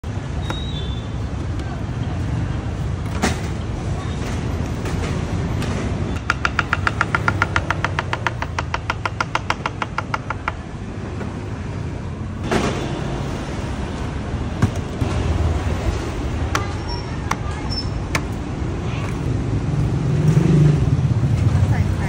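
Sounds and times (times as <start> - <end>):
street traffic: 0.0 - 22.0
knife chopping on wooden board: 6.2 - 10.6.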